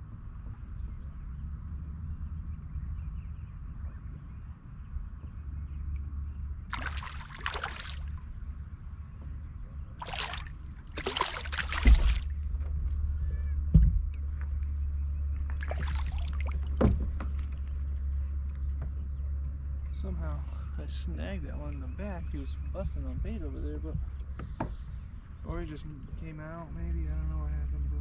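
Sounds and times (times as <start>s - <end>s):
steady low rumble: 0.0s - 28.0s
fish splashing at the surface: 6.7s - 8.2s, 10.0s - 12.4s, 15.5s - 16.8s
low thump: 11.5s - 12.9s, 13.7s - 14.1s, 16.8s - 17.4s.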